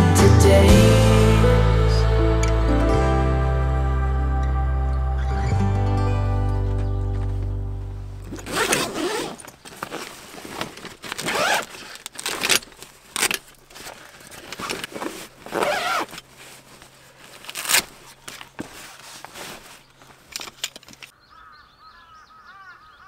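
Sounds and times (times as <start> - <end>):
zipper pulled: 8.2 - 12.6, 13.2 - 19.8
fabric rustling: 8.2 - 21.1.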